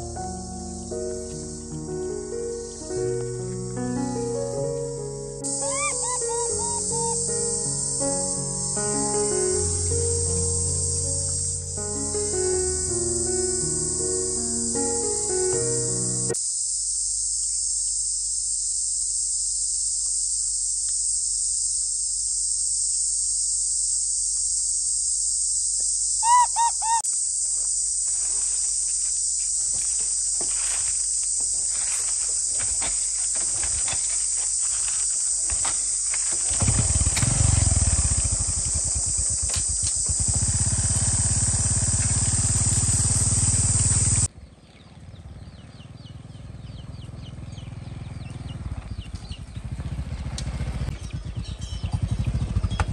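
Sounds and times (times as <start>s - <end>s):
high-pitched insect chorus: 0.0s - 44.3s
short high calls: 5.4s - 8.2s, 26.2s - 27.1s
loud low rumbling: 36.6s - 44.3s.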